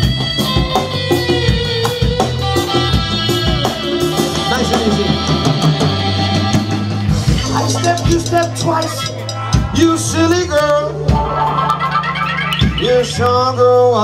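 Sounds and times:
bass guitar: 0.0 - 14.0
drum kit: 0.0 - 14.0
male singer: 7.6 - 11.2, 12.8 - 14.0.

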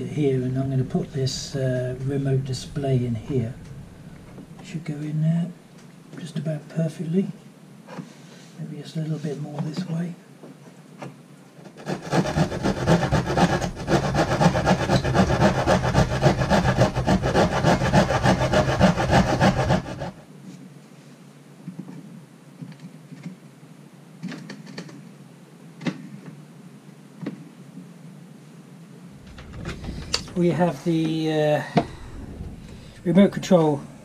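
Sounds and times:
hand saw cutting wood: 11.6 - 20.2.

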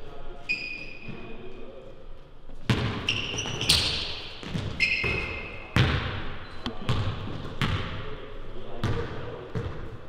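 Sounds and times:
sneakers squeaking: 0.4 - 1.4, 2.5 - 7.9, 8.8 - 10.0
basketball bouncing on hardwood: 2.7 - 6.1.

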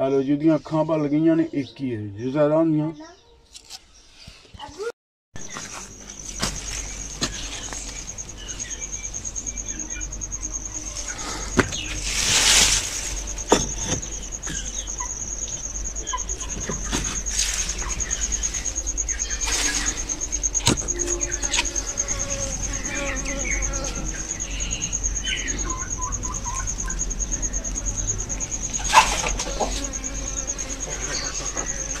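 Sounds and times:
cricket trilling: 5.4 - 32.0
sharp knocks: 13.5 - 14.6.

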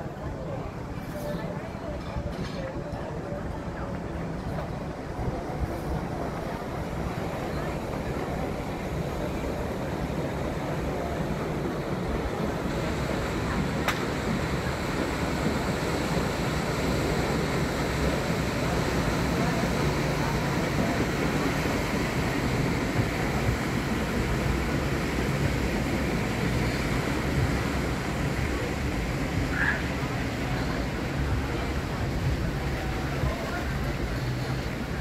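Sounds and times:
paddle steamer churn: 0.0 - 35.0
lake water rushing: 3.1 - 35.0.

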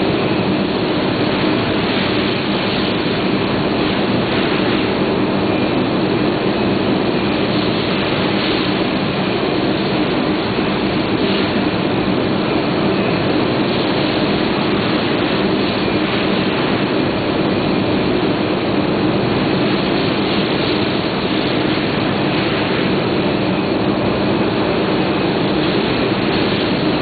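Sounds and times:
low machinery hum: 0.0 - 27.0
machinery air rush: 0.0 - 27.0.

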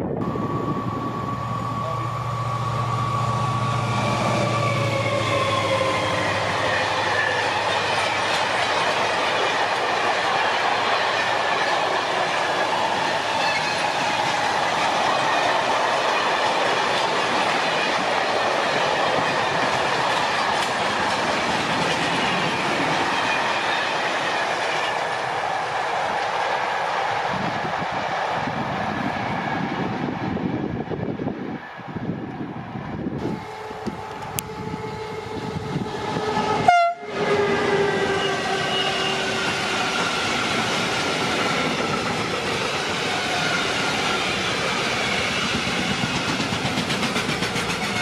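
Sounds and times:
train wagons clattering past: 4.0 - 27.3, 35.9 - 48.0.

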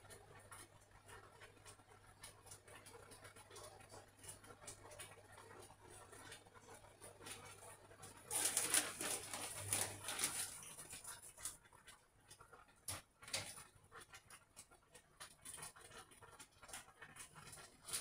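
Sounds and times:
plastic bag rustling and crinkling: 8.2 - 11.6.

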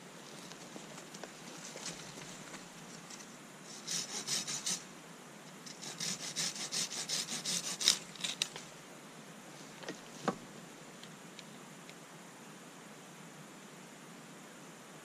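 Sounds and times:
hand saw cutting wood: 3.7 - 4.8, 5.7 - 8.5.

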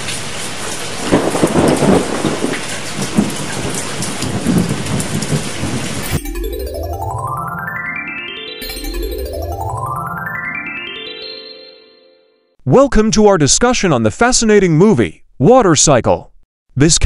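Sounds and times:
heavy rain: 0.0 - 6.0
thunder rolling: 1.0 - 6.0
synthesizer music rising in pitch: 6.0 - 12.5.

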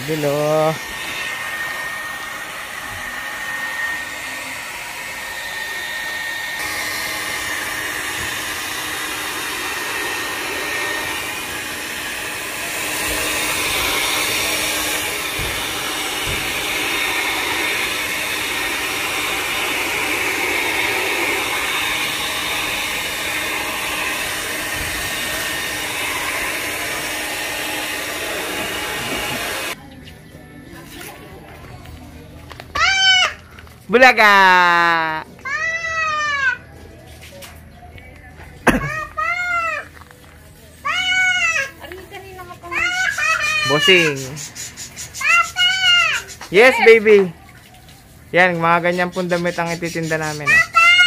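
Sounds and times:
hair dryer running: 0.0 - 29.8, 40.9 - 44.6, 45.4 - 47.3.

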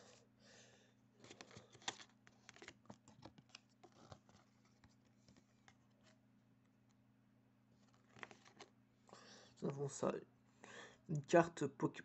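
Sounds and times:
card handling clicks and scrapes: 1.2 - 6.2, 7.8 - 8.7.

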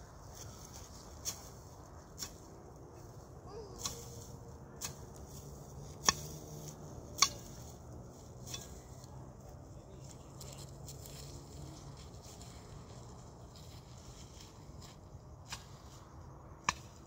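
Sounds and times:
hand hoe chopping stony ground: 6.0 - 6.4, 7.1 - 7.6, 16.6 - 17.0.

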